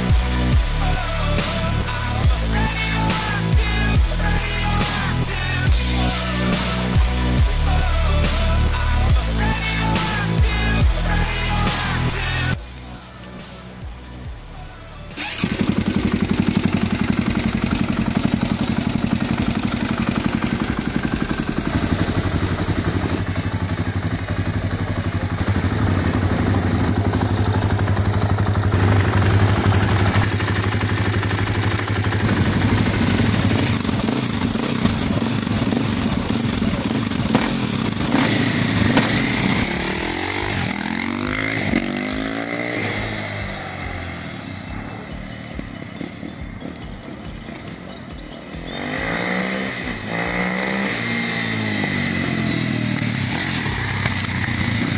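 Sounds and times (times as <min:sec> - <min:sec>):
dirt bike engine idling: 0:00.0 - 0:54.9
dirt bike accelerating through gears: 0:15.2 - 0:54.9.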